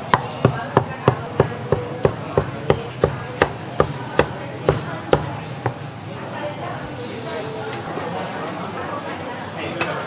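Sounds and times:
cleaver chopping meat on board: 0.0 - 5.8.

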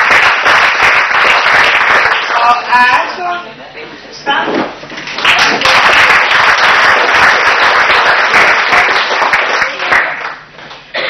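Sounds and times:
crowd applauding: 0.0 - 2.6, 5.0 - 10.5.

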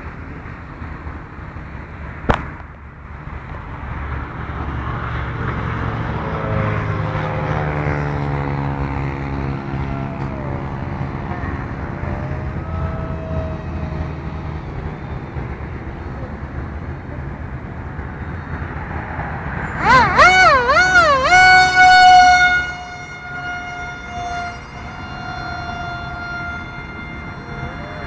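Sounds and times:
sharp knock: 2.3 - 2.7
model airplane motor whine: 7.2 - 15.8, 19.8 - 28.0.

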